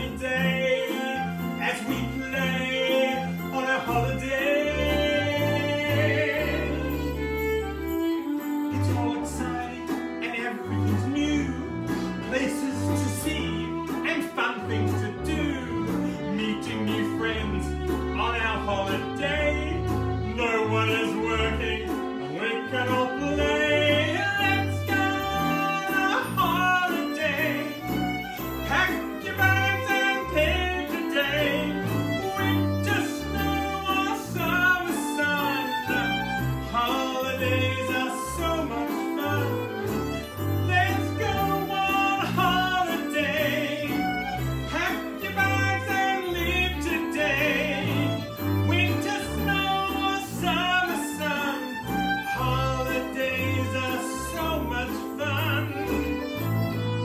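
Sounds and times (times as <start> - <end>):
banjo: 0.0 - 57.0
fiddle: 0.0 - 57.0
man singing with vibrato: 0.0 - 57.0
upright bass: 0.0 - 57.0
low bass notes: 8.7 - 14.1, 14.7 - 34.9.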